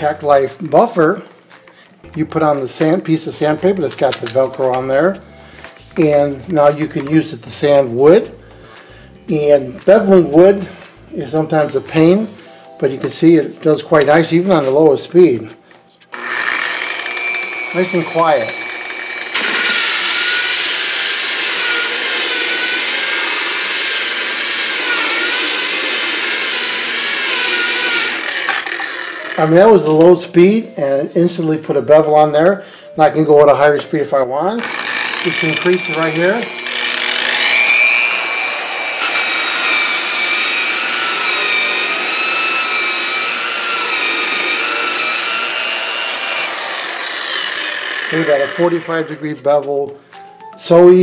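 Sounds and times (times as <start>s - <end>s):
polisher motor whine: 16.1s - 29.6s, 34.6s - 49.2s.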